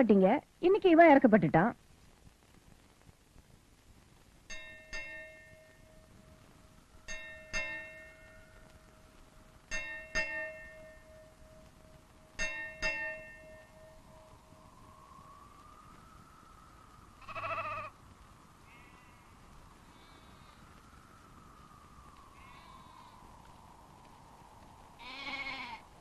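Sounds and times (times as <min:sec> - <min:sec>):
temple bell ringing: 0:04.5 - 0:06.2, 0:07.1 - 0:08.7, 0:09.7 - 0:14.6.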